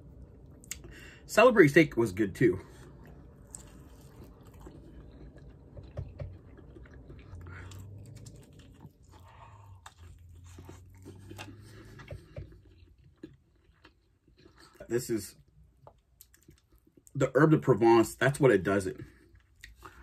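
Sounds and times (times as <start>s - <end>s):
low steady hum: 0.0s - 20.0s
person chewing: 2.7s - 17.1s.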